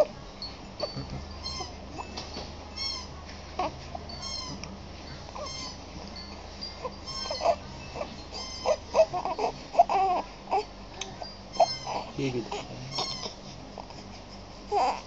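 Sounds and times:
infant crying: 6.8 - 10.8, 11.6 - 14.0, 14.7 - 15.0.

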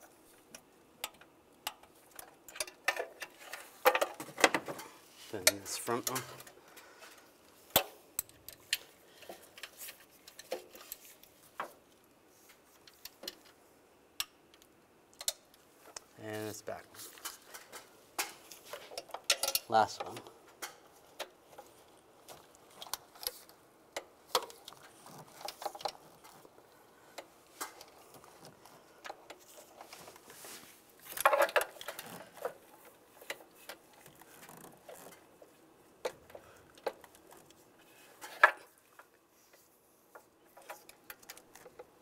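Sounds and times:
tools and parts rattling: 17.0 - 20.2, 31.0 - 35.2.

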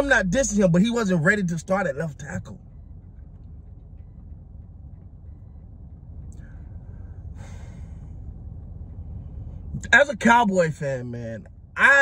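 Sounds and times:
low rumble inside car: 0.0 - 12.0
man breathing sharply through nose: 6.4 - 8.4.

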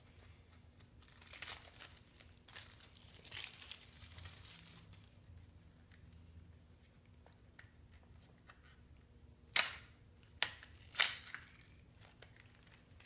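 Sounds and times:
plastic packaging crackling: 0.0 - 5.2.

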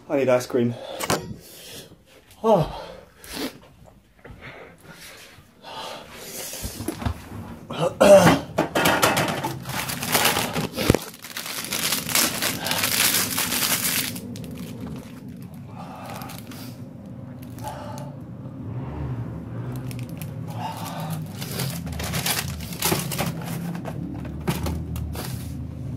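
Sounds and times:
harsh breathing: 0.6 - 3.7, 4.3 - 6.9, 15.5 - 18.8, 20.4 - 22.9
man coughing: 7.7 - 8.6.

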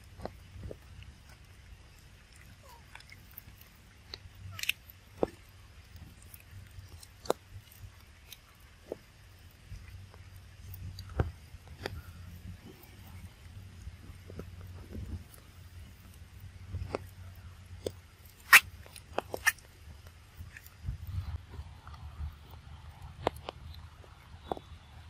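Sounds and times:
low steady rumble: 0.0 - 25.0
monkey chewing crunchily: 0.0 - 25.0.

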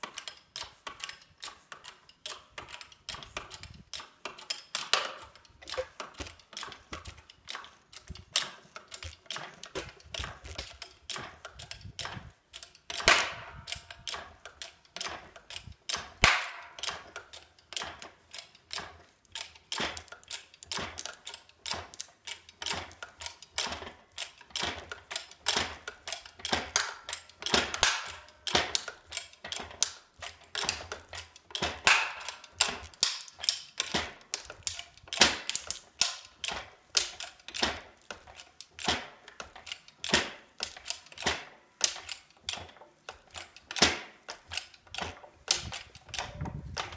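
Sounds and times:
quick metallic clicks of jack pump: 0.0 - 46.9
sharp clacks: 15.9 - 17.1.

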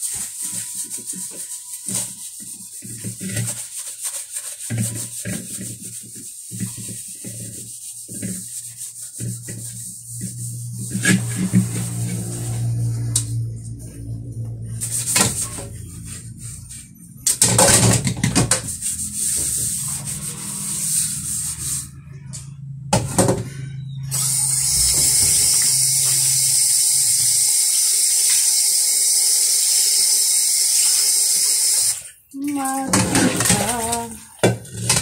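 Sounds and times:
sponge scrubbing metal pan: 0.0 - 22.0, 24.2 - 29.0, 32.4 - 35.0
tap water running into pan: 24.1 - 35.0.

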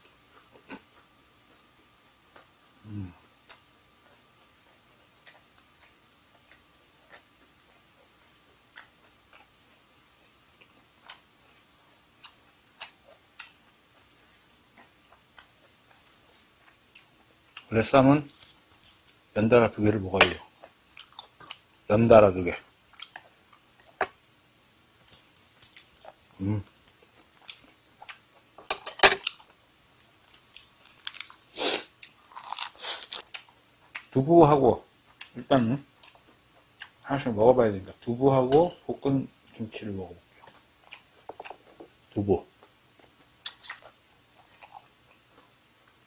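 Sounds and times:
chewing: 2.3 - 9.8, 10.6 - 19.3, 20.2 - 21.7, 22.9 - 24.1, 25.0 - 29.6, 30.2 - 34.2, 35.0 - 37.0, 40.3 - 42.0, 42.6 - 46.0.

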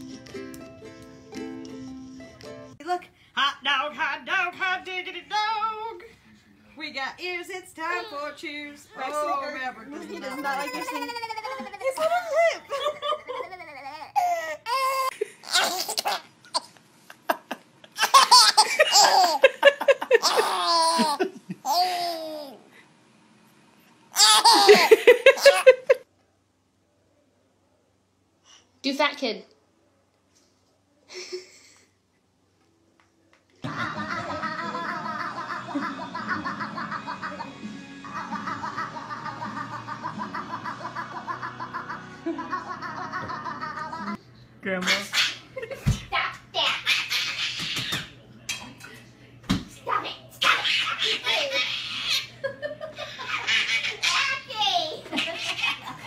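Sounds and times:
infant laughing: 10.0 - 16.7, 18.0 - 22.6, 24.1 - 26.0
baby crying: 13.4 - 16.2, 20.2 - 22.6, 24.1 - 25.8.

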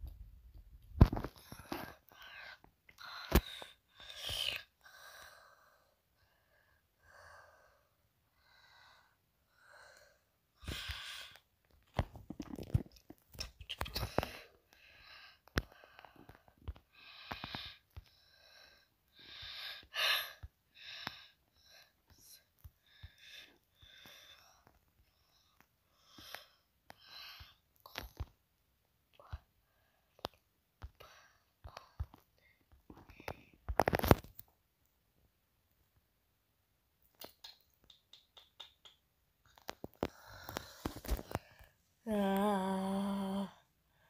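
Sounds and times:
person whispering: 42.0 - 43.6.

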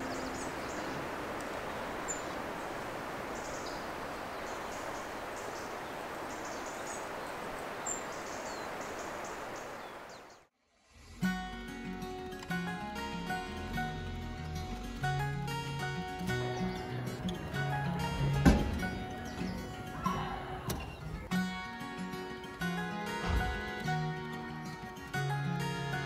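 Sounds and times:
small birds chirping: 0.0 - 10.5, 15.1 - 21.3.

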